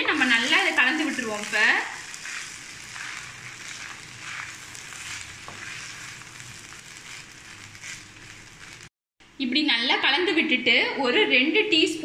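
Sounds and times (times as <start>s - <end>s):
sizzling hiss: 0.0s - 8.9s
wooden spatula scraping rice: 0.0s - 8.9s.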